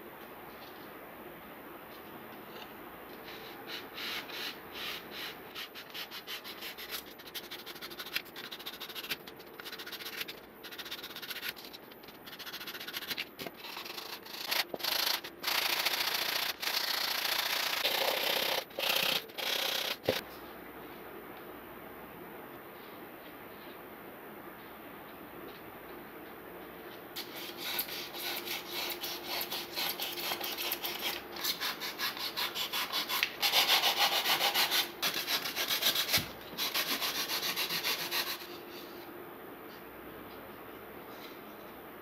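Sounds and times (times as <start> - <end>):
sandpaper rubbing foam: 3.3 - 11.7, 12.3 - 20.2, 27.2 - 38.5.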